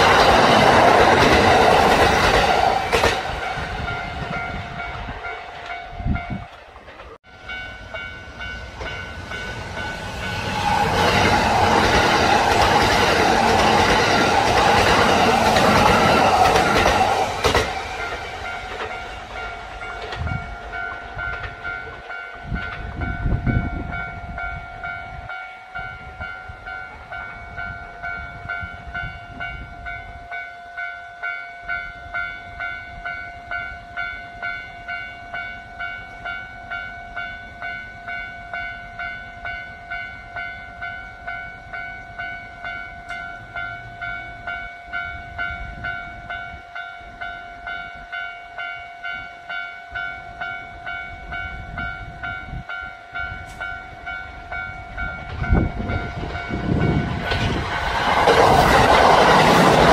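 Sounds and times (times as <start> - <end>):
train hum: 0.0 - 59.9
train rushing on rails: 0.0 - 59.9
wheels clicking over rail joints: 6.4 - 23.1.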